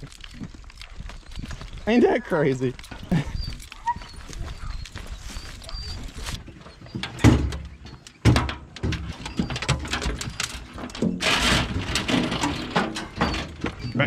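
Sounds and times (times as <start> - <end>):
faint bird chirping: 0.8 - 8.2
clicks and scraping: 2.6 - 14.0
chain leads rattling: 5.6 - 14.0.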